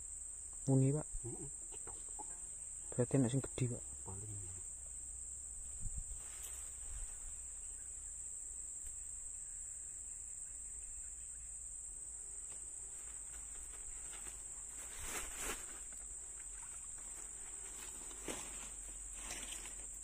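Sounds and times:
high-pitched insect drone: 0:00.0 - 0:20.0
handling rustle: 0:12.4 - 0:20.0.

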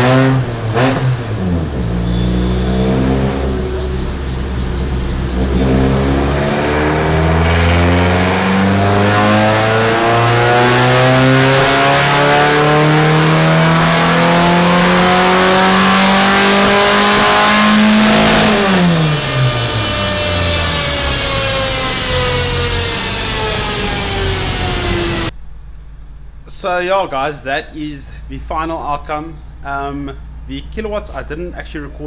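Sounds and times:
race car engine revving under load: 0:00.0 - 0:25.4.

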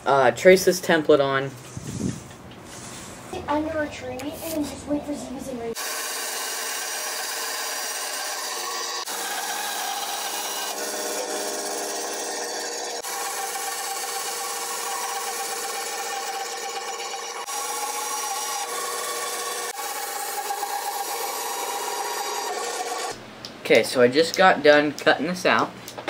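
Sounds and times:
bandsaw cutting hardwood: 0:05.8 - 0:23.2.

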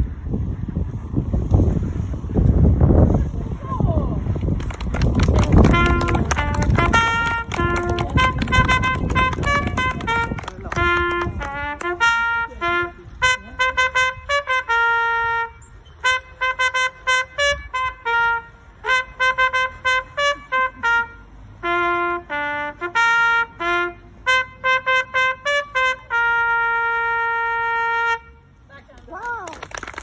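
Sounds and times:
solo trumpet melody: 0:05.2 - 0:28.6.

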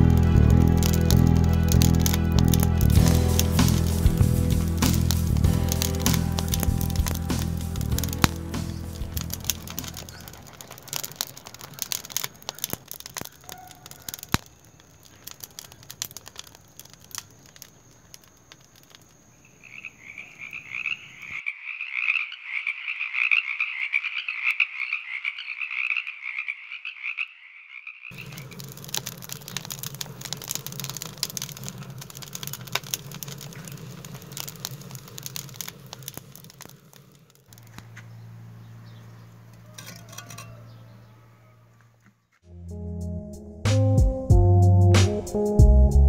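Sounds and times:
crackling clicks: 0:00.0 - 0:21.4, 0:28.1 - 0:40.8
frogs chorus: 0:09.6 - 0:16.0, 0:17.6 - 0:36.7.

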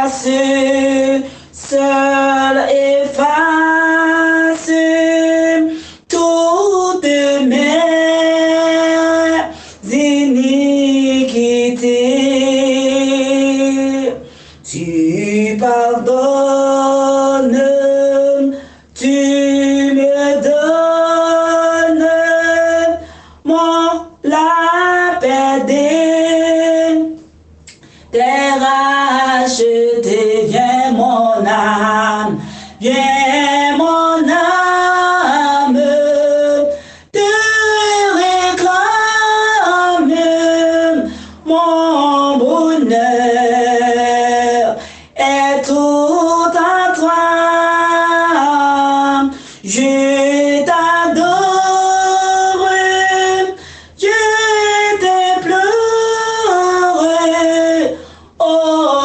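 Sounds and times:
woman singing a hymn: 0:00.0 - 0:27.3, 0:27.9 - 0:59.0.

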